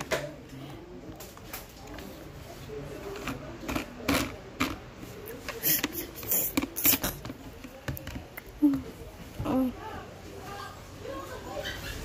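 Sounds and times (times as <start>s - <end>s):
plastic toys clicking and clacking: 3.1s - 8.8s.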